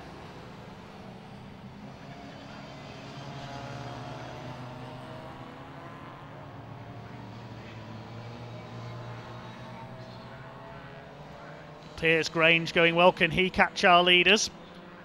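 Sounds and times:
racing car engines passing: 0:00.0 - 0:15.0.

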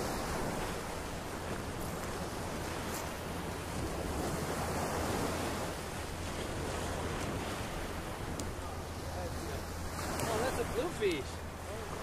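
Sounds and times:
small surf breaking on sand: 0:00.0 - 0:12.0.

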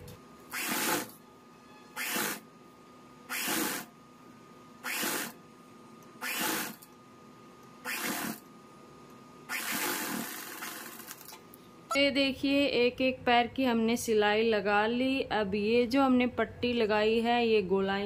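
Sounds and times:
sewing machine stitching: 0:00.5 - 0:01.2, 0:02.0 - 0:02.4, 0:03.3 - 0:03.9, 0:04.8 - 0:05.4, 0:06.2 - 0:06.8, 0:07.9 - 0:08.4, 0:09.5 - 0:11.3.

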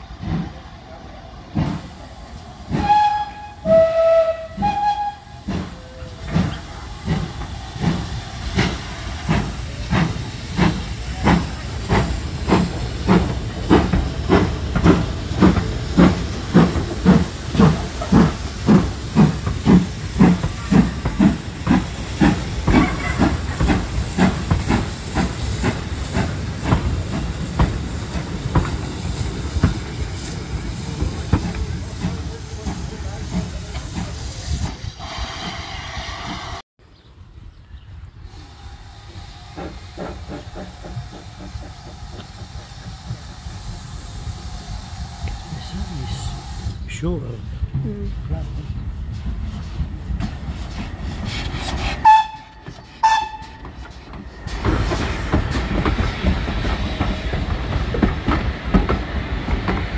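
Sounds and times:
steam locomotive exhaust beats: 0:00.0 - 0:36.6, 0:37.4 - 0:59.9
steam locomotive whistle: 0:02.7 - 0:06.2, 0:52.0 - 0:53.8.

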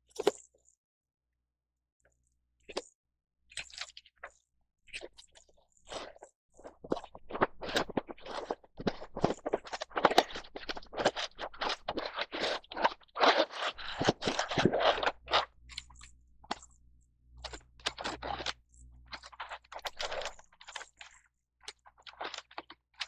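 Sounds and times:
cardboard and plastic tray crinkling: 0:07.3 - 0:15.5, 0:17.4 - 0:22.8.

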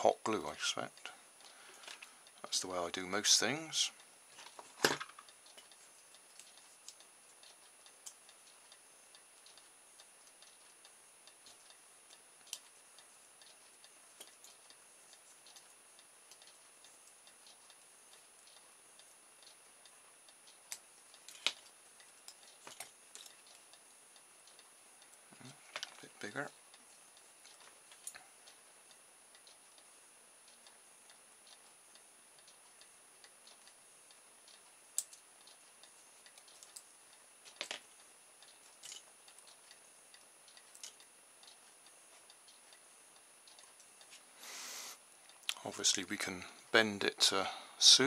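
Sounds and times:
small clicks and taps: 0:11.4 - 0:12.8, 0:20.6 - 0:23.7, 0:24.6 - 0:26.1, 0:34.5 - 0:35.6, 0:36.2 - 0:42.8.

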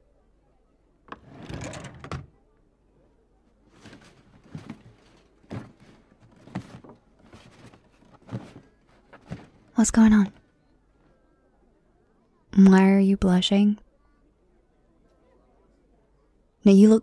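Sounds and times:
belongings rustling: 0:03.5 - 0:10.6
soft knocks: 0:03.8 - 0:09.7.

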